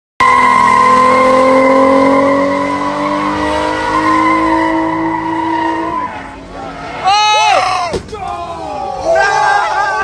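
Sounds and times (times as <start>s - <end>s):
engine revving high: 0.2s - 7.0s.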